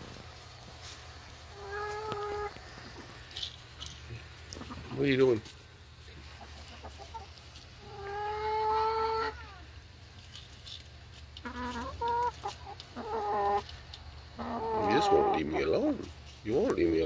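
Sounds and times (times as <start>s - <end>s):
hen clucking: 1.3s - 17.0s
hen calling: 1.5s - 2.9s, 6.2s - 9.8s, 11.4s - 16.1s.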